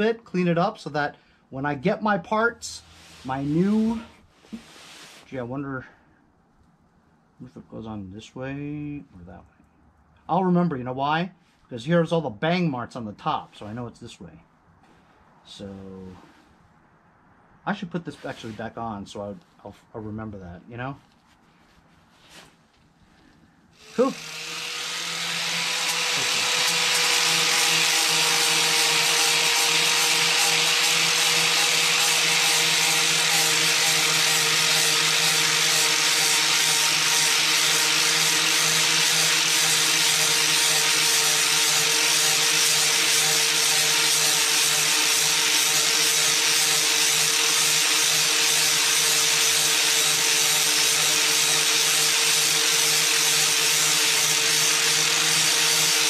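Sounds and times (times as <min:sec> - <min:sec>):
power tool grinding metal: 0:23.8 - 0:56.0.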